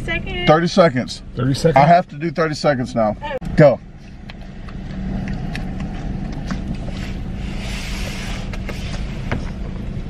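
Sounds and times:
car engine idling: 0.0s - 10.0s
short hissing rush: 6.9s - 9.3s.

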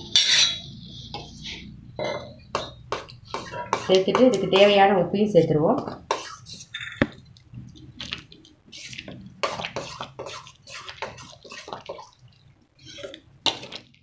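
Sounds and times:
ladle sloshing and scraping food: 0.0s - 4.8s, 7.5s - 14.0s.

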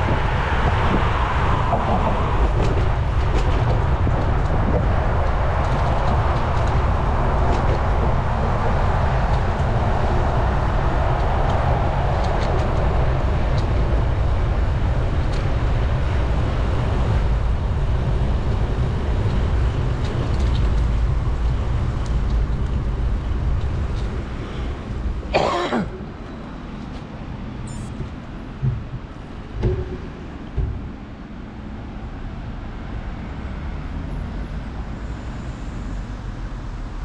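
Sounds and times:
wind rushing over microphone: 0.0s - 25.4s
road traffic: 0.0s - 37.0s.

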